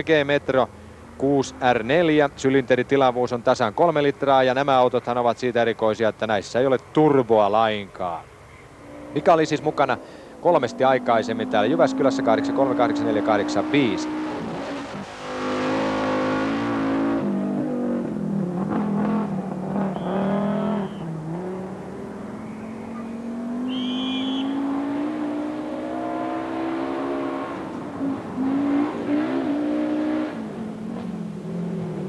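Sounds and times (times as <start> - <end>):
rally car engine accelerating: 8.8 - 32.0.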